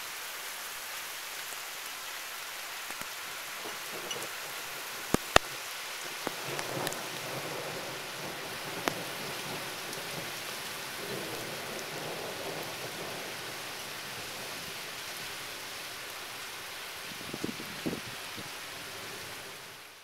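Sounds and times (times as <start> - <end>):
heavy rain: 0.0 - 20.0
distant thunder rumble: 3.5 - 16.3.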